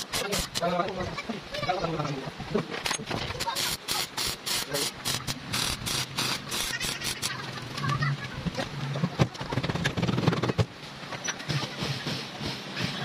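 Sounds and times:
arc welding crackling: 0:00.0 - 0:01.0, 0:03.3 - 0:08.1.

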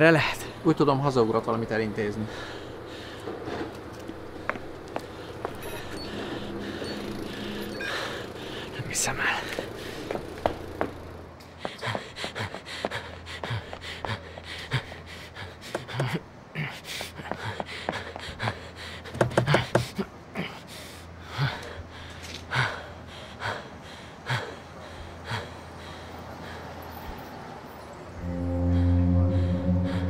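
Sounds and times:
man panting and gasping: 0:11.5 - 0:26.8.

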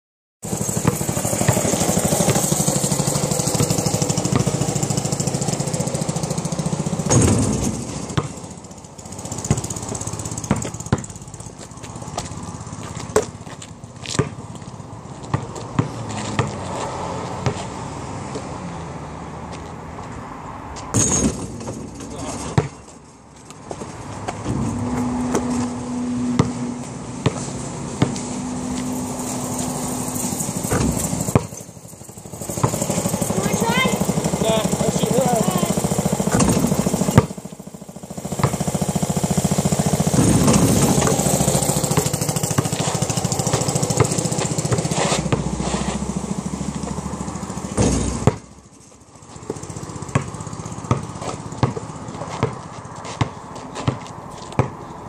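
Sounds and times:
basketball bouncing on asphalt: 0:00.4 - 0:55.0
steady motor hum: 0:39.9 - 0:44.6.

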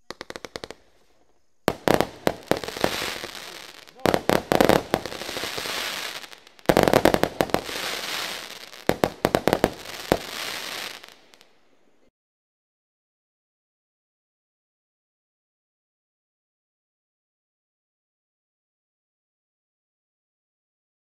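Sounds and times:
firework bangs and crackling: 0:00.0 - 0:11.6.

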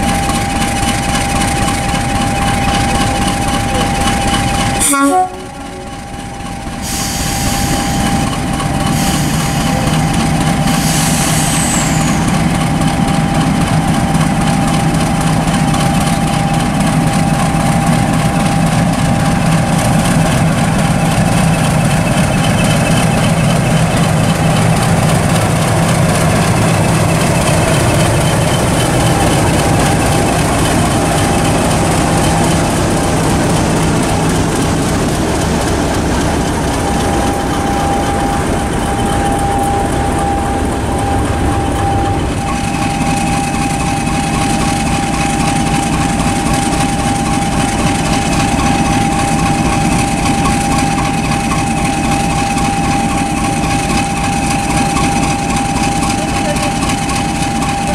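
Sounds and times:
diesel locomotive engine running: 0:00.0 - 0:57.9
steady high whine: 0:19.6 - 0:57.9.

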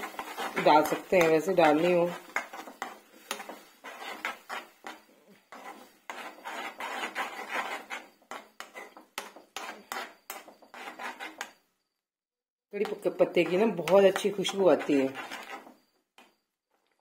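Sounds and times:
steel spoon scraping a pan: 0:00.0 - 0:11.6, 0:12.8 - 0:17.0.

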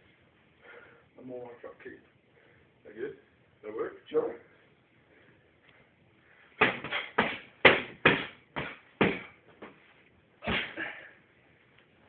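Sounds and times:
heavy kick on pads: 0:06.6 - 0:09.4
punches smacking pads: 0:06.6 - 0:09.4, 0:10.4 - 0:10.8.

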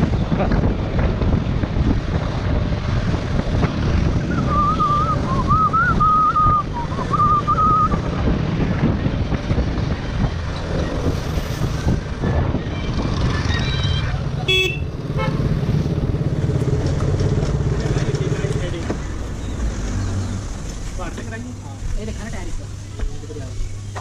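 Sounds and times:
wind rushing over microphone: 0:00.0 - 0:21.0
person whistling a tune: 0:04.3 - 0:08.0
motorcycle engine running: 0:12.3 - 0:19.1.

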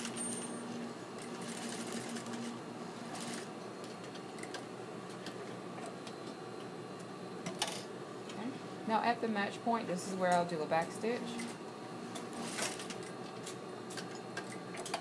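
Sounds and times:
sewing machine running: 0:01.2 - 0:02.5, 0:03.1 - 0:03.5.

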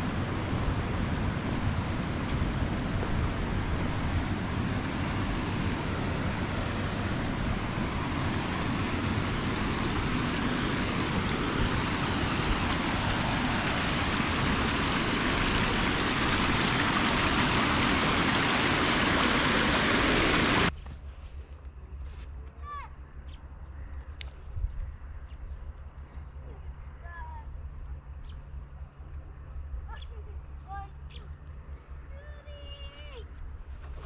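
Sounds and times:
river water rushing over stones: 0:06.4 - 0:20.7.

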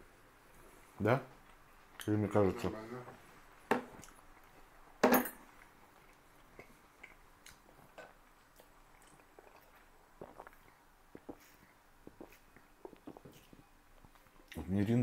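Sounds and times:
tableware clicks and knocks: 0:05.0 - 0:05.4.

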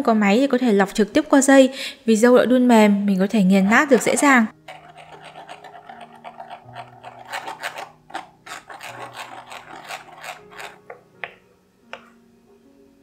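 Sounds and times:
spoon rasping on mesh sieve: 0:04.6 - 0:11.0.

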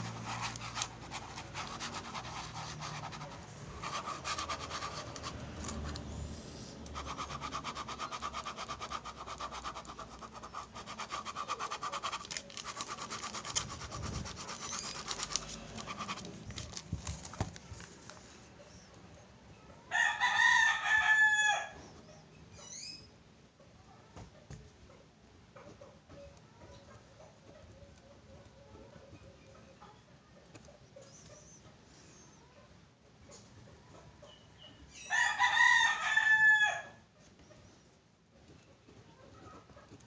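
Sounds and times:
pen scribbling on paper: 0:00.0 - 0:06.1, 0:06.8 - 0:16.8.

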